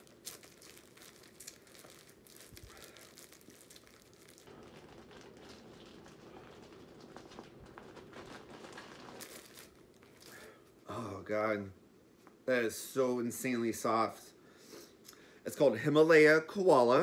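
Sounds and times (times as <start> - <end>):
plastic package crinkling: 0.0 - 10.6.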